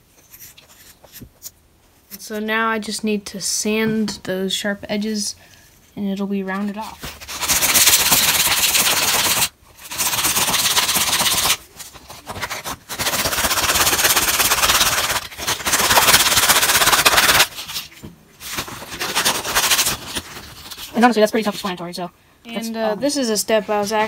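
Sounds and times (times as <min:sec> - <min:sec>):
wood rubbing on sandpaper: 0:07.1 - 0:11.6, 0:12.2 - 0:17.8, 0:18.4 - 0:21.7.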